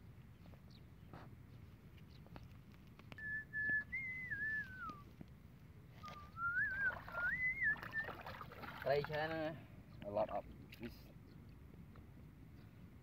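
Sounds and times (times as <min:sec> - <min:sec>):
person whistling a tune: 0:03.2 - 0:05.1, 0:06.0 - 0:08.2.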